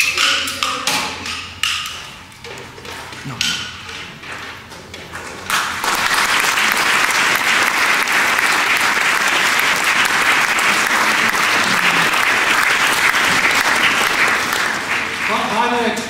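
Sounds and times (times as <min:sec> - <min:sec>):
audience applauding: 0:05.1 - 0:16.0.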